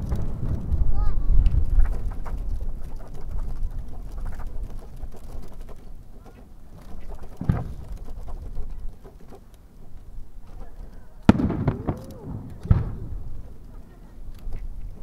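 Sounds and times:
faint fireworks pops: 0:00.0 - 0:04.8, 0:06.2 - 0:08.0, 0:10.4 - 0:15.0
low fireworks rumble: 0:00.0 - 0:15.0.

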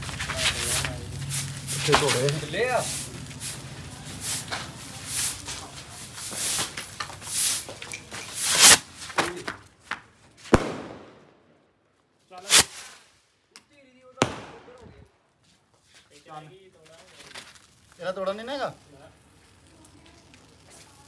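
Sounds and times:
firework bangs: 0:00.0 - 0:09.6, 0:10.4 - 0:11.6, 0:12.4 - 0:13.2, 0:14.2 - 0:15.2
rocket launch rush: 0:12.4 - 0:13.0.

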